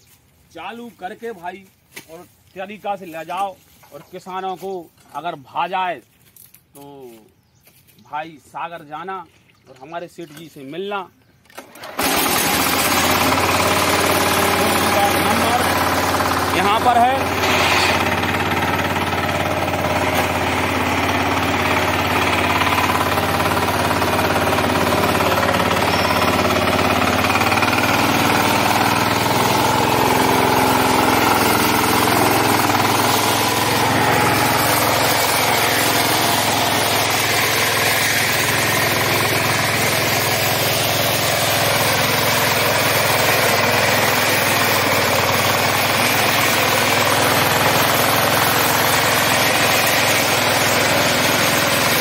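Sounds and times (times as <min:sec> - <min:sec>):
small diesel engine chugging: 0:11.6 - 0:52.0.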